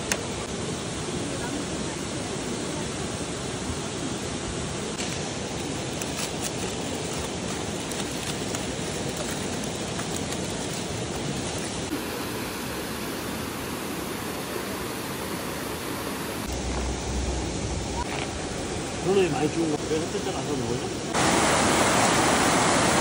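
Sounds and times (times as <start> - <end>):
mountain stream rushing: 0.0 - 23.0
foil and plastic wrap crinkling: 5.6 - 11.9.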